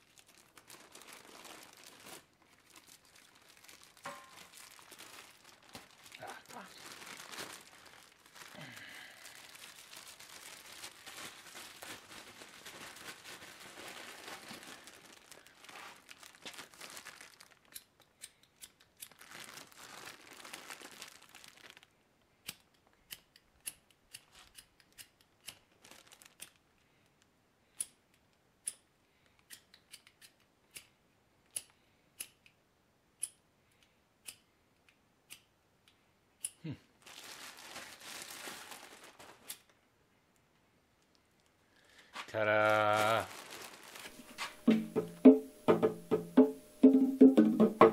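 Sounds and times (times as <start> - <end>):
plastic bag and glove crinkling: 0.0 - 18.0, 18.8 - 22.0, 25.6 - 27.3, 37.0 - 39.7, 41.0 - 45.7.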